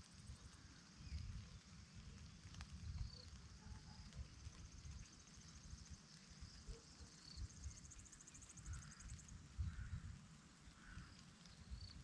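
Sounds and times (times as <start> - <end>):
gusty wind rumble: 9.5 - 10.2.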